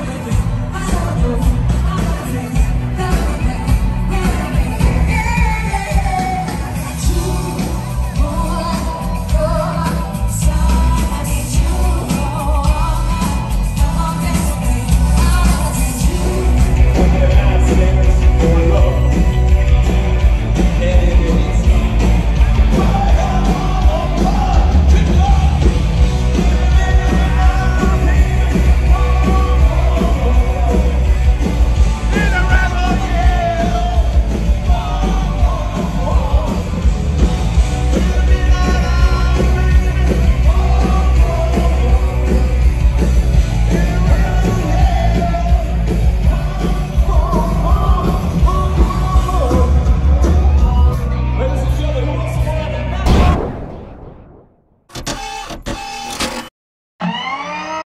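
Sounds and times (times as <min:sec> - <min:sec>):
loud rock music with vocals: 0:00.0 - 0:54.2
people singing along and yelling: 0:20.8 - 0:51.1.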